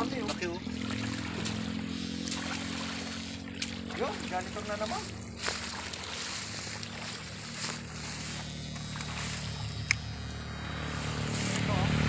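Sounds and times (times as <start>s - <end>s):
water sloshing: 0.0s - 10.0s
low engine hum: 0.0s - 12.0s.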